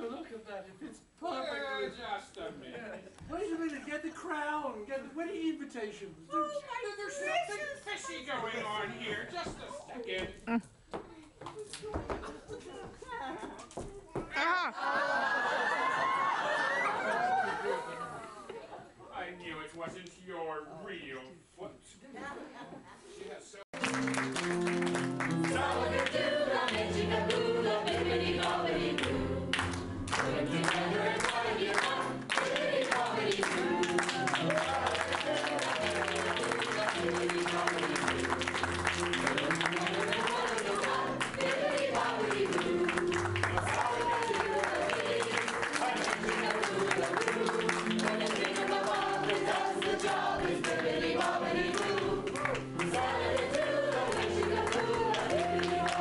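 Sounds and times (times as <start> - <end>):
sharp claps or beats: 23.8 - 25.6
group singing: 25.2 - 56.0.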